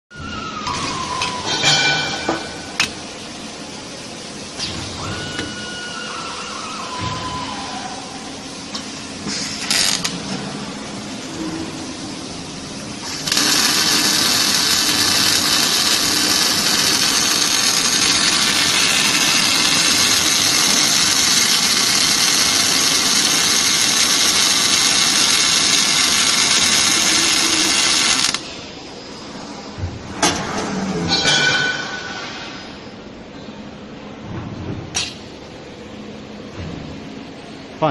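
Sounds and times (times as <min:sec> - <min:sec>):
welding arc hissing: 0:09.2 - 0:10.3, 0:12.5 - 0:28.5.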